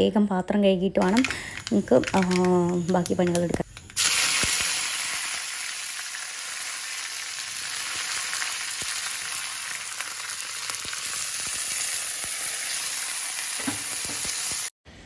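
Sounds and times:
food sizzling in a pan: 4.0 - 14.7.

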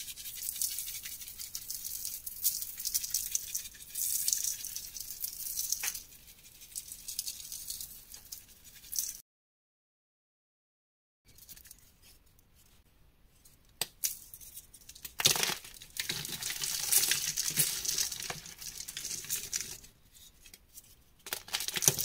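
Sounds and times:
chalk grains pattering on slab: 0.0 - 9.2.

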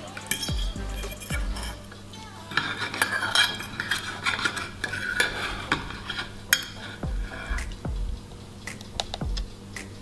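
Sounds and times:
knife scraping baking dish: 2.5 - 7.6.

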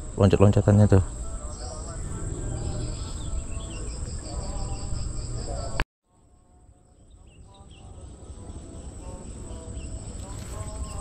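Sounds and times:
insects chirring: 0.0 - 5.8, 7.1 - 11.0
bird chirps: 1.0 - 5.8, 6.7 - 11.0
low rumble: 1.7 - 5.8.

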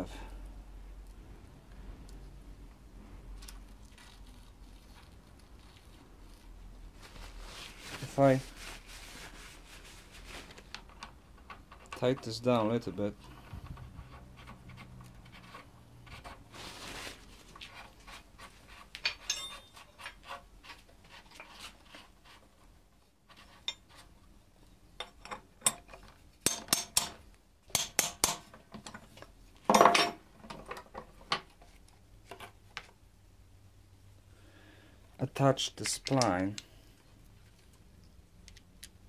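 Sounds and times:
metal clinks knocks and rubbing: 19.0 - 20.4.

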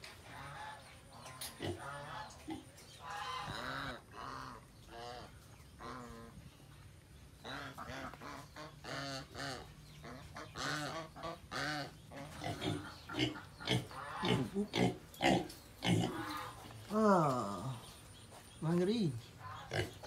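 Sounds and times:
pigs calling: 0.2 - 6.4, 7.4 - 16.8, 19.2 - 20.0
geese honking: 13.2 - 14.6.

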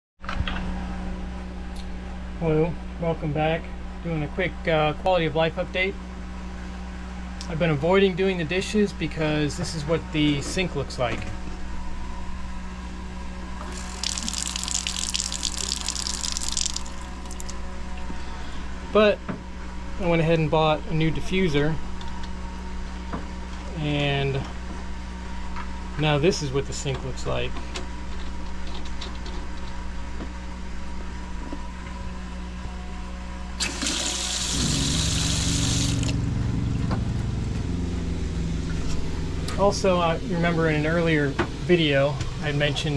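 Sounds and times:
steady low hum: 0.2 - 42.9
water splashing into steel sink: 13.7 - 17.6.

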